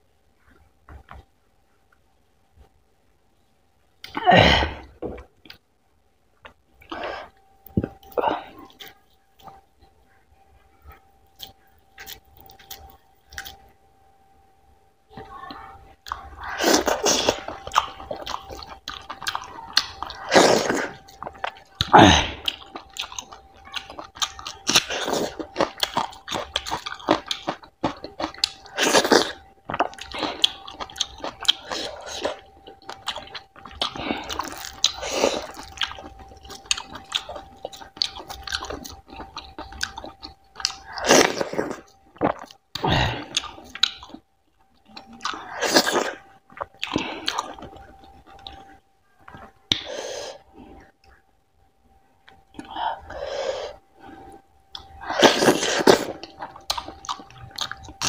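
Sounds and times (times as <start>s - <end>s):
faint steady tone: 0.0s - 58.0s
wet chewing: 11.3s - 13.7s, 16.0s - 51.3s, 54.1s - 58.0s.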